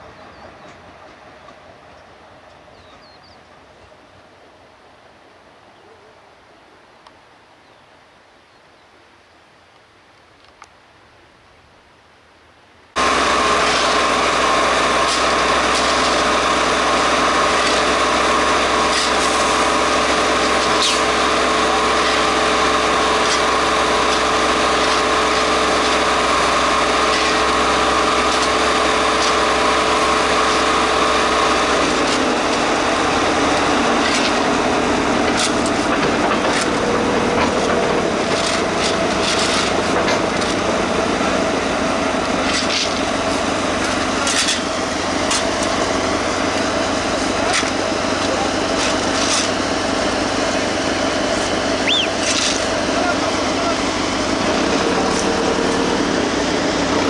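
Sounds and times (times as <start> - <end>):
rail machine running: 0.0 - 5.3, 13.0 - 57.0
high whine: 13.0 - 57.0.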